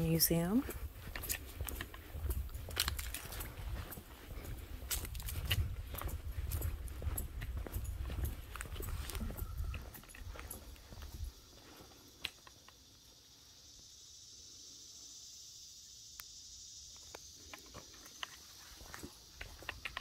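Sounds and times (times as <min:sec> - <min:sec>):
high-pitched insect drone: 0:00.0 - 0:20.0
light footsteps on boards: 0:00.6 - 0:11.2.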